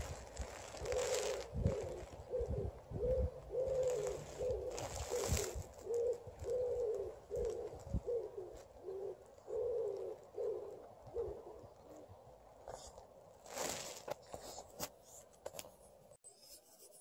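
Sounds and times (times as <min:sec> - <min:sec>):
pigeon cooing: 0:00.6 - 0:12.2.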